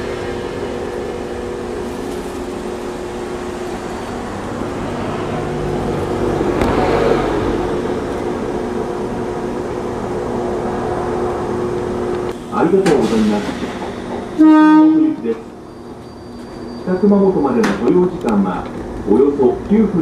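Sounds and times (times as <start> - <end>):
loud rush of noise: 0.0 - 15.7
electric train humming: 0.0 - 20.0.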